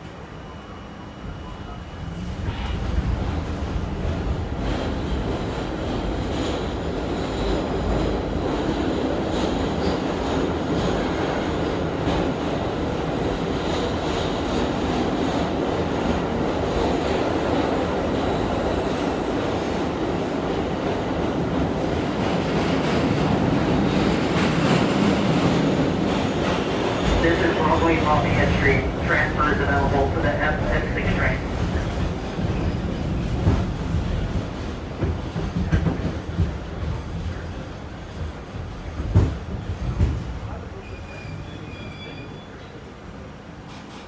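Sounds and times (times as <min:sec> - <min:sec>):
subway car rumbling in tunnel: 0:00.0 - 0:44.0.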